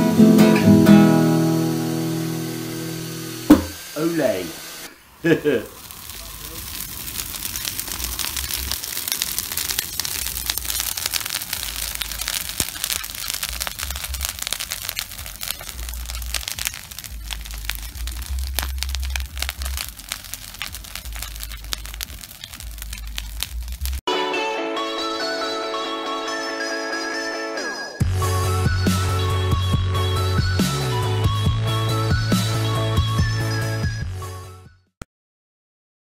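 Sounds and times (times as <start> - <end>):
music: 0.0 - 3.5, 24.1 - 35.0
bonfire crackling and popping: 3.5 - 24.0.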